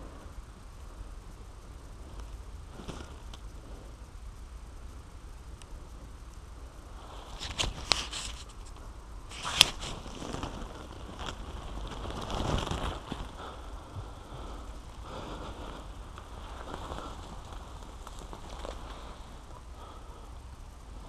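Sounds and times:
leaves brushing against camera: 0:07.1 - 0:13.4, 0:15.8 - 0:19.6
rustling scrape: 0:07.1 - 0:13.4.

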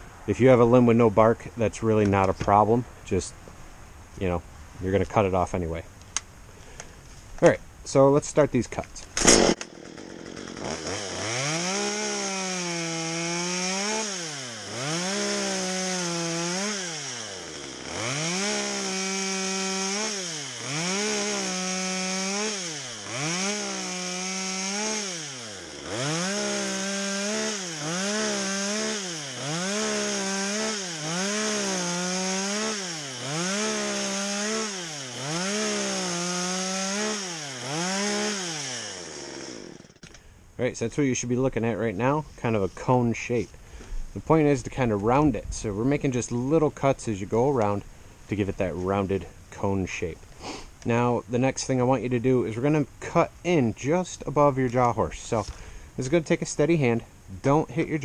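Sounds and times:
chainsaw revving and cutting wood: 0:09.1 - 0:40.2.

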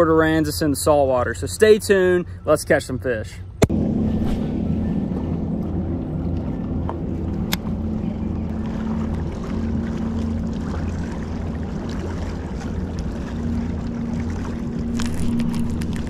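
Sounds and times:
wind: 0:00.0 - 0:16.0
low hum: 0:03.5 - 0:16.0
water washing against rocks: 0:08.7 - 0:16.0.

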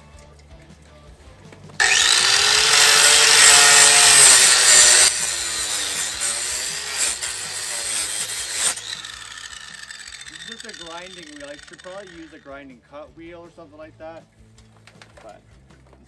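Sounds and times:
angle grinder cutting metal wire: 0:01.8 - 0:12.5.

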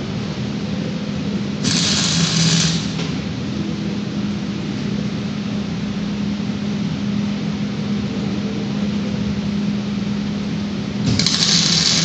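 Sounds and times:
low machine hum: 0:00.0 - 0:12.0
welding arc crackling: 0:01.6 - 0:03.2, 0:11.0 - 0:12.0.

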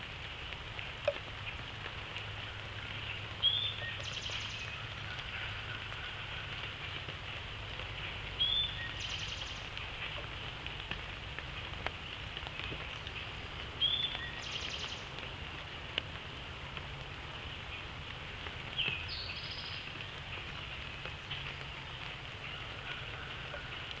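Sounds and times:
rain hissing: 0:00.0 - 0:24.0
songbird singing: 0:00.0 - 0:24.0.

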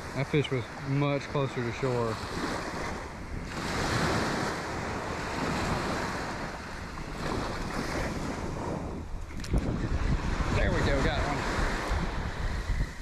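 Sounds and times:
waves washing onto sand: 0:00.0 - 0:13.0
wind buffeting microphone: 0:00.0 - 0:13.0.

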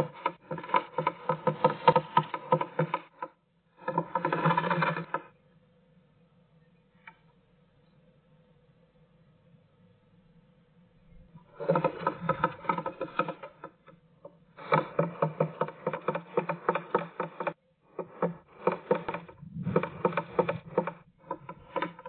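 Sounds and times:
bird pecking wood: 0:00.0 - 0:05.3, 0:11.5 - 0:13.8, 0:14.6 - 0:22.0.

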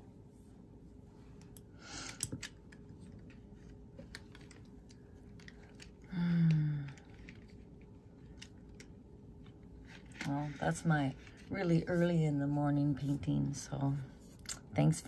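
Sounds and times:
person humming: 0:06.1 - 0:07.1.

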